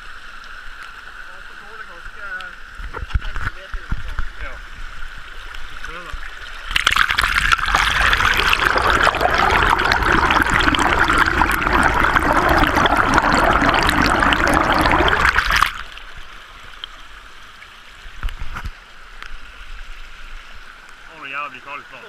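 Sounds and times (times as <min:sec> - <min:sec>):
water rushing underwater: 0:05.0 - 0:18.3.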